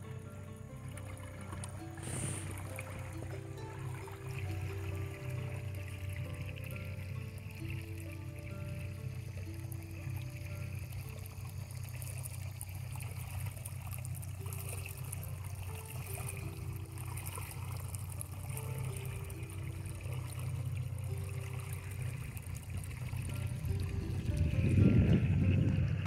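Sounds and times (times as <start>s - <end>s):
water rushing along boat hull: 0.0s - 26.0s
steady low rumble: 19.4s - 26.0s.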